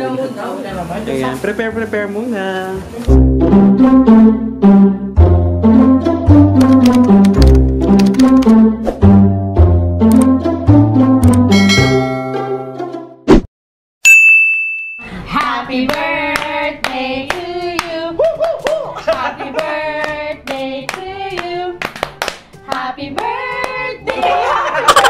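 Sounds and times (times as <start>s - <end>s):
bell-like ding: 11.5s - 12.7s, 14.0s - 15.1s
group singing birthday song: 15.1s - 18.3s, 18.9s - 24.8s
people clapping: 15.4s - 25.0s.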